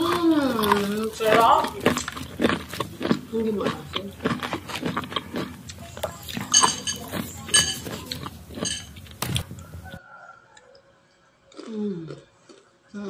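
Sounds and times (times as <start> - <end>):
crunchy chewing: 0.0 - 13.0
spoon clinking on ceramic bowl: 5.9 - 9.1.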